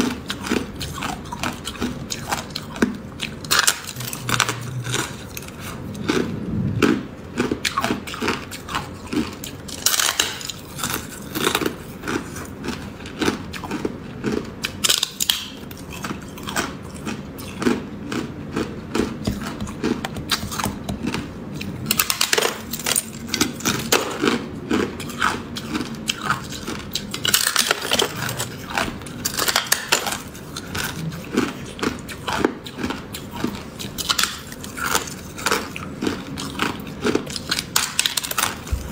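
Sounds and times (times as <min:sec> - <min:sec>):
person chewing ice: 0:00.0 - 0:38.9.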